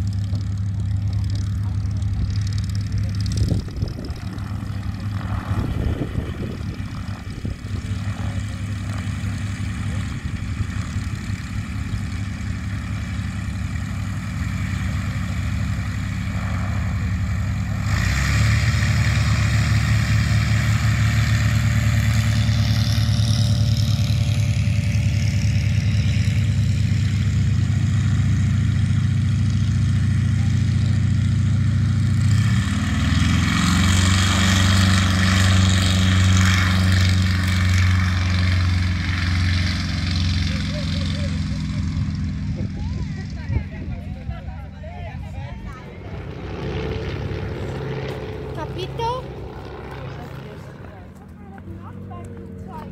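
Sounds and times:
radial aircraft engine droning: 0:00.0 - 0:52.9.

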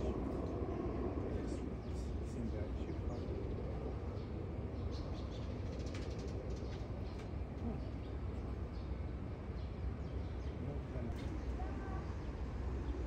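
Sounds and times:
steady low rumble: 0:00.0 - 0:04.8.

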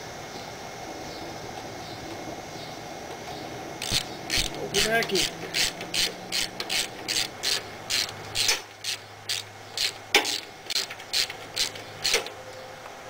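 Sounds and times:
ratchet wrench clicking: 0:03.8 - 0:12.3.

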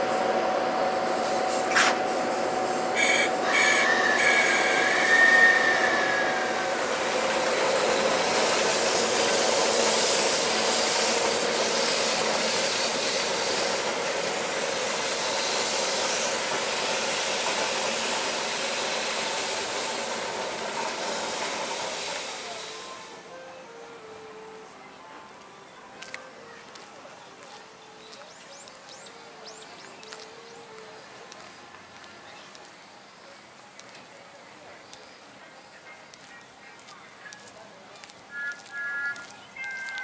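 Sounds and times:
electric locomotive rolling: 0:00.0 - 0:40.0
wheel squeal: 0:03.0 - 0:06.5.

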